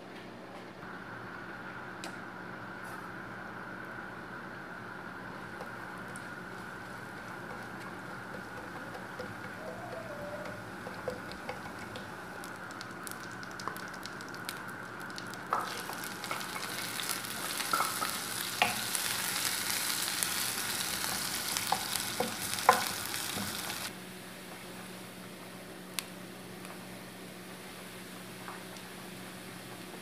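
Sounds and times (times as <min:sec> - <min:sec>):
spatula clicking and tapping: 0:07.3 - 0:14.5, 0:15.2 - 0:18.9, 0:21.6 - 0:23.6
seeds sizzling in hot oil: 0:11.0 - 0:23.9
spatula knocking on pan: 0:21.7 - 0:22.9.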